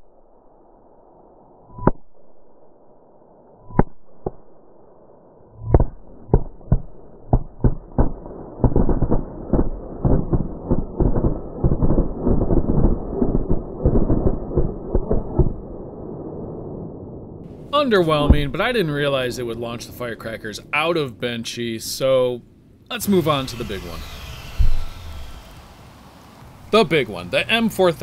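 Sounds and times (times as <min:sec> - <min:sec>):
firecrackers banging: 0:22.9 - 0:27.7.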